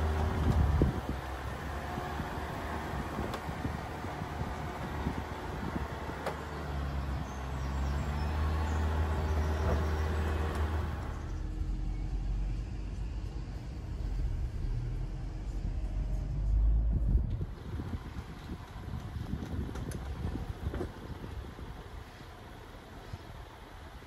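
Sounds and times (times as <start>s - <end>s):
car engine rumbling: 0.0s - 24.0s
muffled low drone inside cabin: 11.3s - 17.5s.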